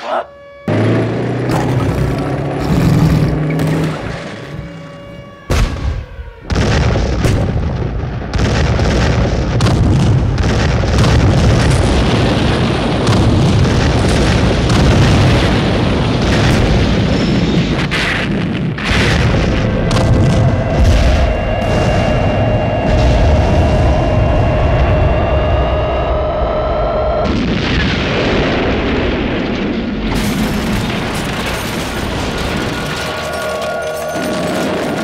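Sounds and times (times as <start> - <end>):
explosions: 0.7 - 35.0
tank cannon fire: 5.5 - 24.9, 27.2 - 35.0.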